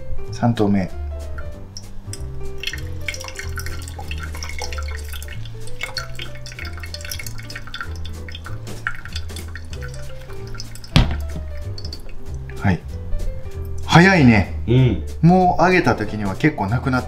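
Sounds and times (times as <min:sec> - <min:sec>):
background music with bass line: 0:00.0 - 0:17.0
water pouring onto coffee grounds: 0:01.8 - 0:12.6.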